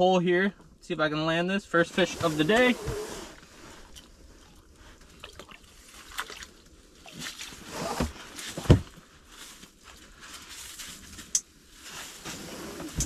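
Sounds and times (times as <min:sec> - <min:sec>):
faint water splashing: 0:03.6 - 0:07.7.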